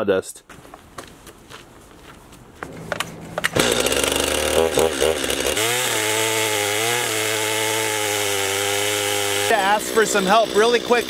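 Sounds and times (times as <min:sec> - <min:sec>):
chainsaw cutting log: 0:03.4 - 0:11.0.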